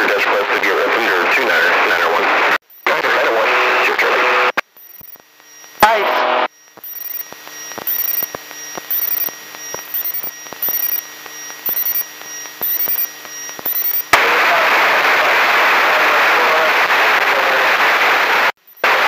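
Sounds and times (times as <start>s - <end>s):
loud steady radio hiss: 0.0s - 19.0s
steady electrical hum: 2.6s - 15.5s
sharp regular clicks: 4.6s - 5.8s, 6.6s - 14.2s
faint high chirps: 4.7s - 5.8s, 6.5s - 14.1s.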